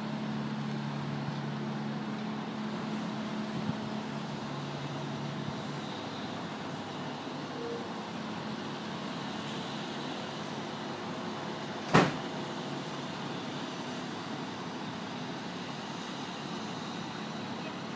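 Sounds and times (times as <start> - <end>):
city street traffic hum: 0.0 - 17.9
sharp knock: 11.9 - 12.2.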